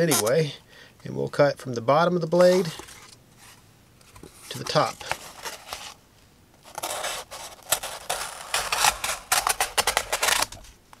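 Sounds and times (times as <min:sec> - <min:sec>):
knife blade slicing cardboard: 0:06.6 - 0:10.6.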